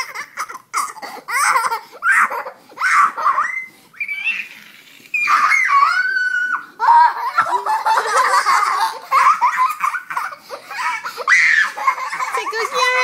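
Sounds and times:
girl high-pitched cry: 0:05.3 - 0:07.6, 0:09.2 - 0:13.0
girl laughing: 0:06.8 - 0:13.0.

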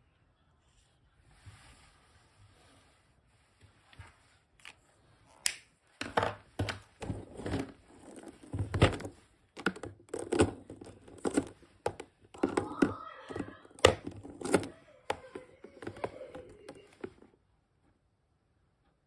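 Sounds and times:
plastic markers clacking and rattling: 0:06.0 - 0:17.3.

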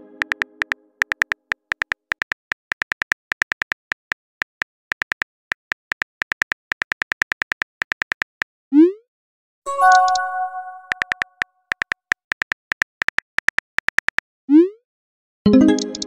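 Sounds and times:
keyboard typing clicks: 0:00.0 - 0:08.5, 0:09.7 - 0:14.2, 0:15.5 - 0:16.0
brief chime: 0:09.7 - 0:10.9.

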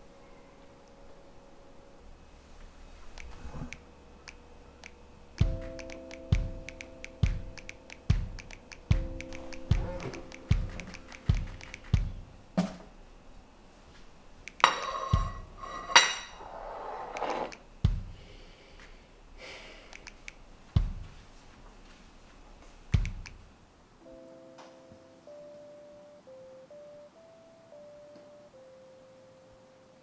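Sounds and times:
held keyboard notes: 0:00.0 - 0:12.6, 0:19.9 - 0:21.4, 0:22.4 - 0:30.0
plate clattering on countertop: 0:14.6 - 0:16.4
low thuds: 0:17.8 - 0:18.2, 0:20.8 - 0:21.2.

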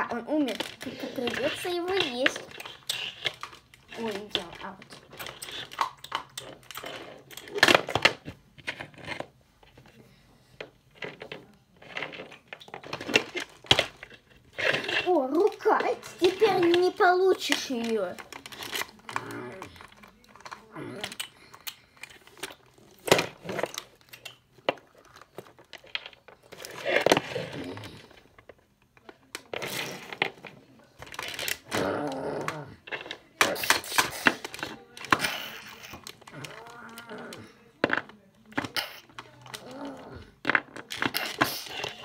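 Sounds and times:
toy figures clattering on floor: 0:00.0 - 0:10.0, 0:10.6 - 0:42.0
person making growling noises: 0:31.7 - 0:32.8, 0:36.3 - 0:37.6, 0:39.6 - 0:40.4.

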